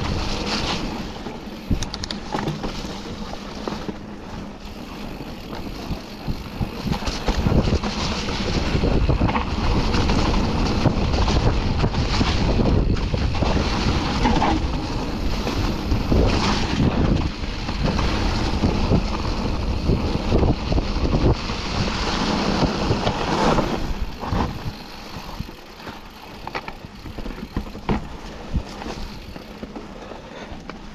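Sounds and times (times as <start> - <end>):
bike rattling over bumps: 0.0 - 30.9
bike tyres rolling through mud: 0.0 - 30.9
wind buffeting microphone: 5.1 - 25.8.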